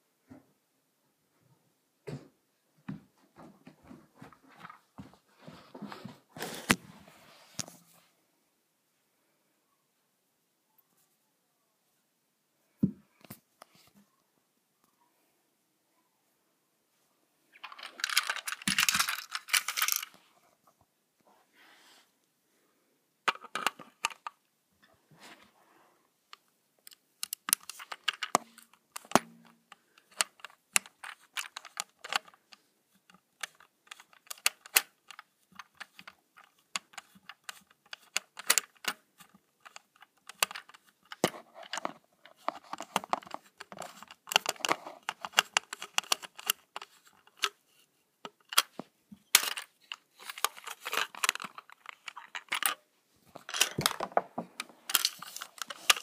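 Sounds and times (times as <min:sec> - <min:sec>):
plastic toy train clicks and rattles: 0:17.5 - 0:20.2, 0:23.3 - 0:24.4, 0:26.8 - 0:56.0.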